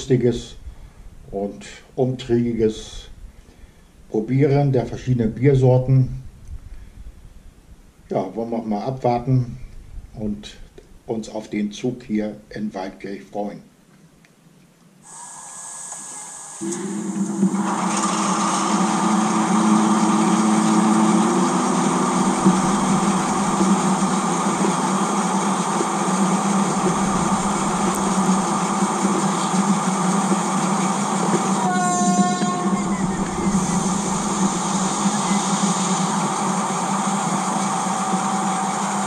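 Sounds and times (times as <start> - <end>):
model train motor humming: 15.0 - 39.0
wheels rolling on track: 16.6 - 39.0.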